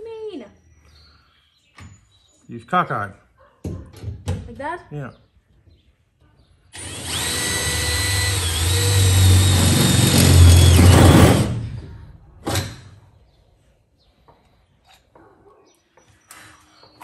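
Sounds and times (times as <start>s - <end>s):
cordless drill whining: 6.8s - 11.7s.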